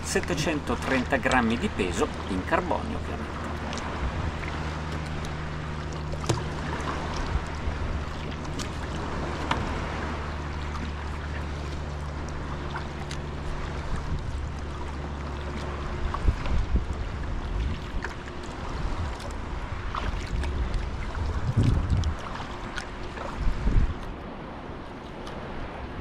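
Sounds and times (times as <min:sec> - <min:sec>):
paddle splashing and dripping: 0:00.0 - 0:25.9
steady low hum: 0:00.0 - 0:26.0
water lapping against kayak hull: 0:00.0 - 0:26.0.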